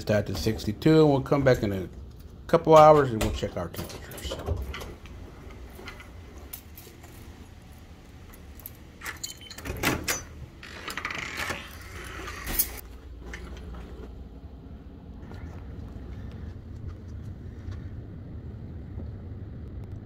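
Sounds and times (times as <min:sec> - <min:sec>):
keys jangling: 0:08.3 - 0:10.3
low steady rumble: 0:12.6 - 0:20.0.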